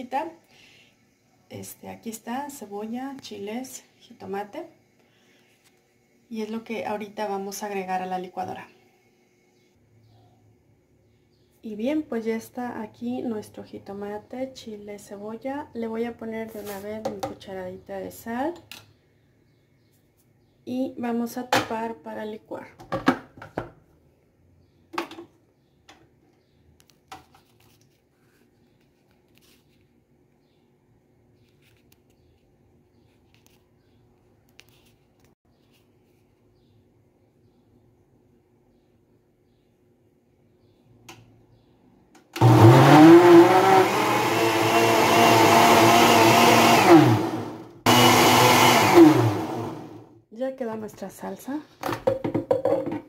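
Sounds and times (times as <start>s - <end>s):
blender motor running: 42.4s - 50.1s.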